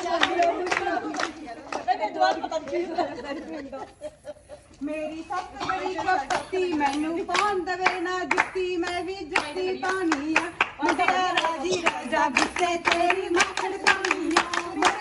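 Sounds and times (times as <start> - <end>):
women clapping: 0.0 - 3.1, 6.1 - 15.0
woman singing folk verse: 4.8 - 15.0.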